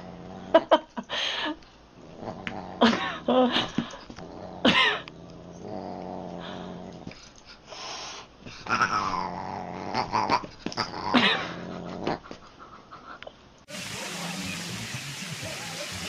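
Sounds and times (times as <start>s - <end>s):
low growling: 0.0s - 0.7s, 2.0s - 3.4s, 4.2s - 7.2s, 8.6s - 12.3s.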